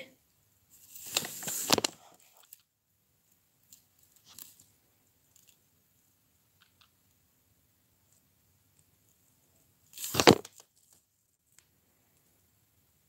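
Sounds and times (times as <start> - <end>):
handling rustle on microphone: 0.7 - 2.6.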